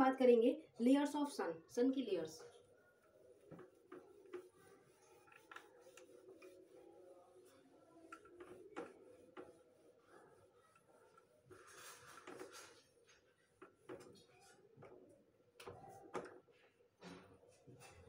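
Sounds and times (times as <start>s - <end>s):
whiteboard eraser rubbing: 2.4s - 16.7s.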